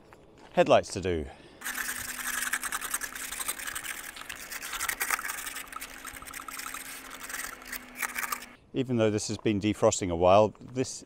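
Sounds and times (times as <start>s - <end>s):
brush scrubbing ice off headlight: 1.6s - 8.6s.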